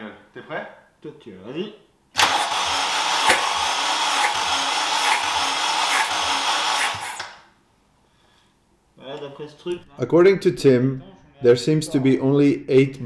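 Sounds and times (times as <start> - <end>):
engine cranking on starter motor: 2.2 - 7.4.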